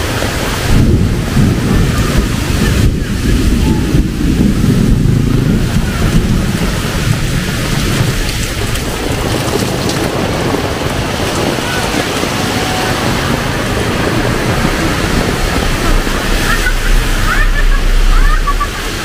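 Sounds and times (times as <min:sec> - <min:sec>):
heavy rain pouring: 0:00.0 - 0:19.0
low rumble: 0:00.4 - 0:19.0.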